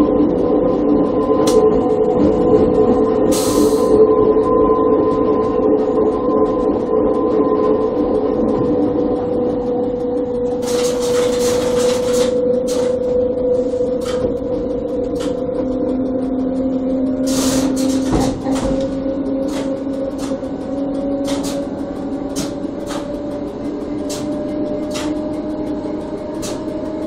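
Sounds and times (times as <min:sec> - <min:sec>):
electric railcar drive whine: 0:00.0 - 0:27.0
sharp clicks and knocks: 0:10.6 - 0:13.1, 0:13.9 - 0:15.6, 0:17.2 - 0:27.0.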